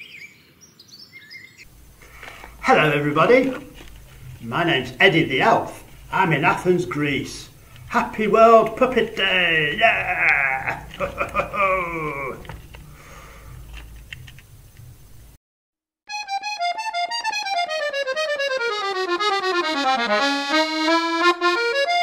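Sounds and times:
accordion music: 0:01.8 - 0:13.0, 0:16.1 - 0:22.0
high sing-song voice: 0:07.9 - 0:12.6.

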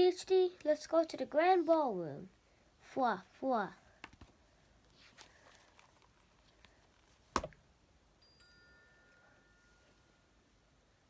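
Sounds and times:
book rustling and tapping: 0:04.0 - 0:07.6
book cover closing thump: 0:07.3 - 0:07.6.

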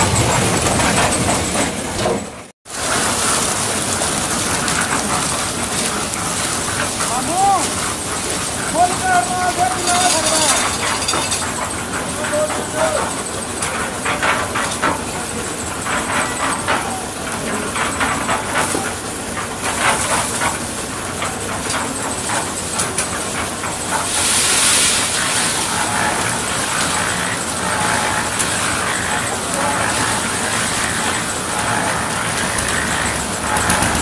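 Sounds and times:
concrete mixer clattering: 0:00.0 - 0:34.0
rushing hiss: 0:23.8 - 0:27.6.

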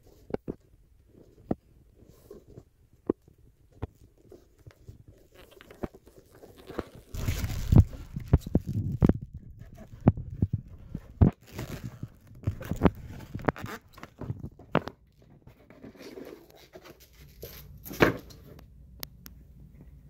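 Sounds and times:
plastic wrap crinkling: 0:04.6 - 0:14.6.

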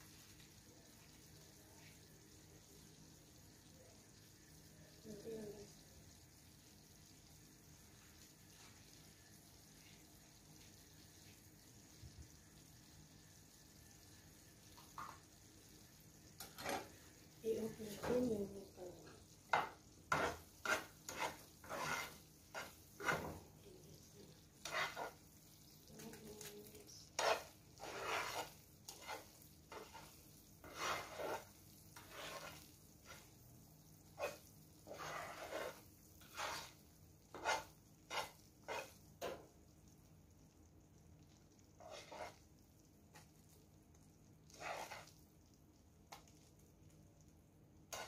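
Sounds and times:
syrup bubbling hiss: 0:00.0 - 0:48.0
metal spoon scraping pan: 0:16.4 - 0:17.0, 0:19.5 - 0:23.4, 0:24.6 - 0:25.3, 0:26.9 - 0:33.4, 0:34.1 - 0:39.5, 0:41.8 - 0:42.4, 0:44.4 - 0:45.2.

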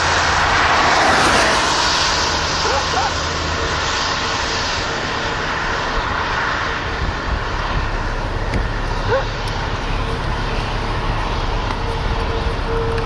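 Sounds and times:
rushing wind: 0:00.0 - 0:13.0
wind buffeting microphone: 0:04.6 - 0:13.0.

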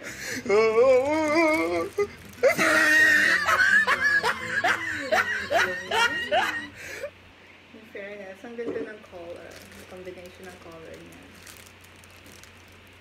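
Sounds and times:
woman wailing: 0:00.2 - 0:07.1
woman laughing: 0:01.3 - 0:07.1.

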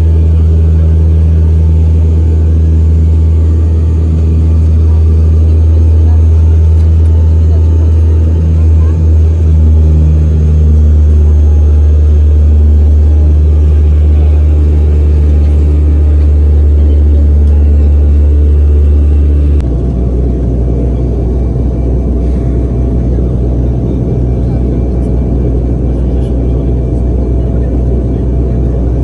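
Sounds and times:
loud low rumble: 0:00.0 - 0:29.0.

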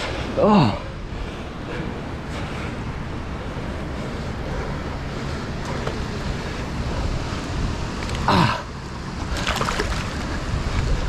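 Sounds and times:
wind buffeting microphone: 0:00.0 - 0:11.0
water roaring over spillway: 0:08.0 - 0:10.6.

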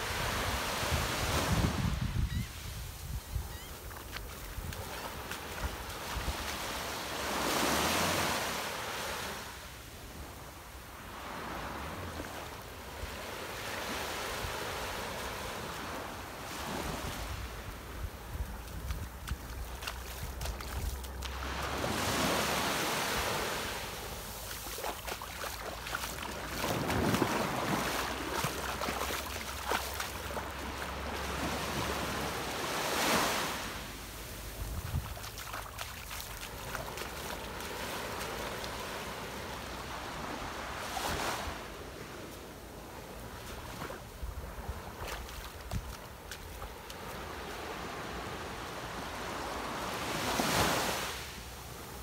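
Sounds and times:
wind rumble on microphone: 0:00.0 - 0:06.7, 0:16.8 - 0:22.1, 0:34.5 - 0:35.4, 0:44.1 - 0:46.8
small waves breaking on shore: 0:00.0 - 0:52.0.

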